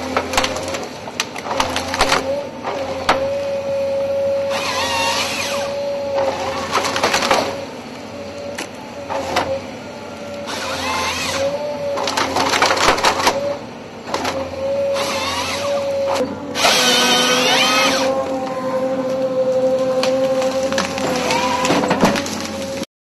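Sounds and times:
steady hydraulic whine: 0:02.3 - 0:22.9
motor whine bursts: 0:03.2 - 0:12.4, 0:13.2 - 0:22.8
branches snapping: 0:19.1 - 0:22.8.

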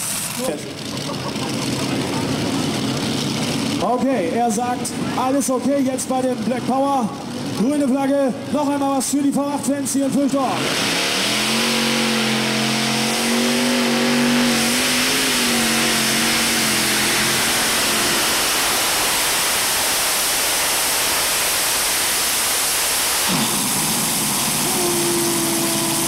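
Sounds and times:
tractor engine roaring: 0:00.0 - 0:26.0
engine revving: 0:10.1 - 0:26.0.

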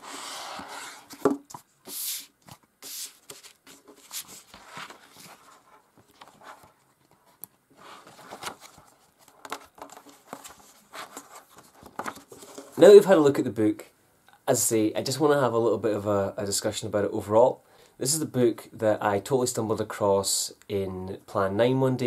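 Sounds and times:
book pages swishing: 0:00.0 - 0:12.8
book rustles and taps: 0:00.6 - 0:01.7, 0:02.4 - 0:12.8
book knock: 0:01.2 - 0:01.6.

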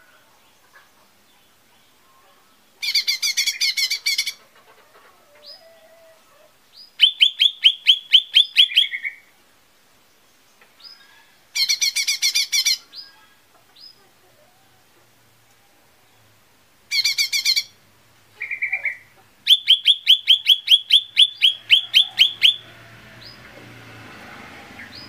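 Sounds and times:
bird singing rapid high notes: 0:07.0 - 0:09.3, 0:18.4 - 0:23.4.

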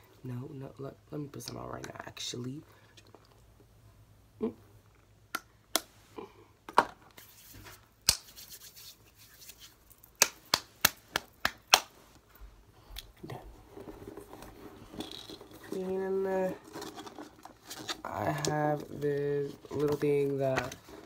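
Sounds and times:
hands slapping sanitizer gel: 0:08.0 - 0:12.0.

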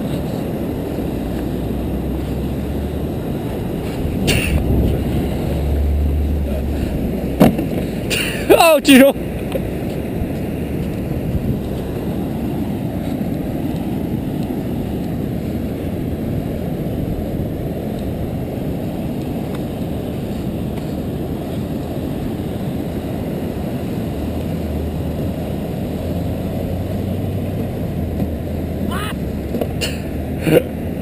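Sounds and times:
wind rumbling on microphone: 0:00.0 - 0:08.1, 0:09.2 - 0:31.0
car engine hum: 0:00.0 - 0:13.5, 0:22.6 - 0:31.0.

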